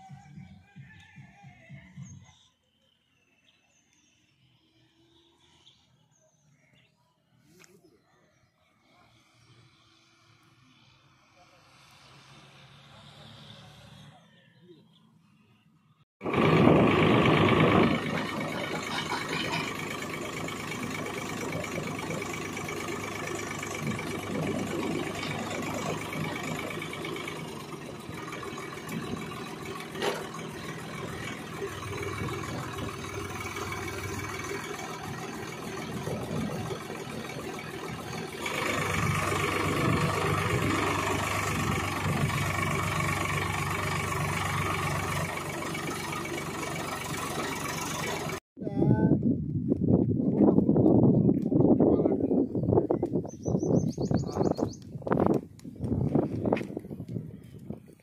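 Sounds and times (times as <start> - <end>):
tractor diesel engine running: 16.2 - 48.4
auger boring into soil: 17.0 - 48.4.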